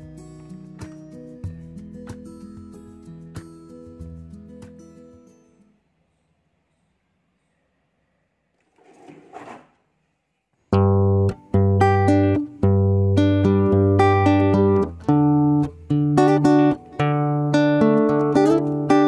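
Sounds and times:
plucked guitar melody with bass: 0:10.8 - 0:19.0.

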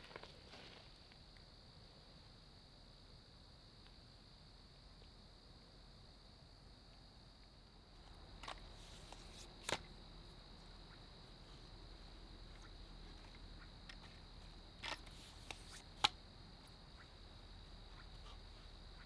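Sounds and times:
tripod clicks and clacks: 0:14.8 - 0:16.2.

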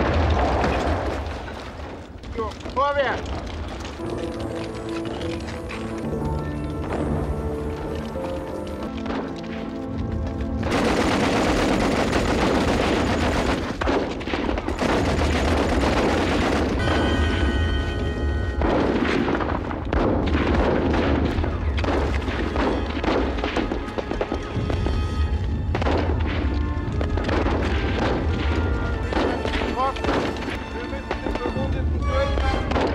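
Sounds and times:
rifle and machine-gun fire: 0:00.0 - 0:02.0, 0:10.6 - 0:24.9, 0:25.6 - 0:30.6
booming explosions: 0:00.0 - 0:06.0, 0:08.9 - 0:32.9
music: 0:03.8 - 0:13.9, 0:14.7 - 0:32.9.

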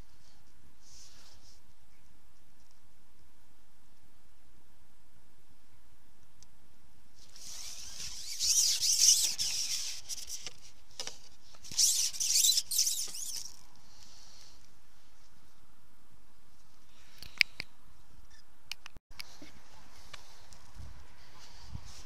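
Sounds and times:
rubbing and scraping on microphone: 0:07.2 - 0:13.6.

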